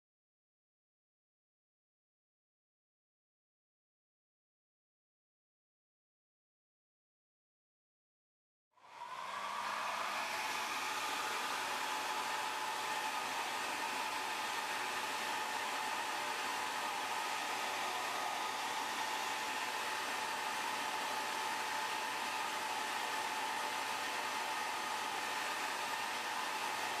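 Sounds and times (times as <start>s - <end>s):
hair dryer running: 8.8s - 27.0s.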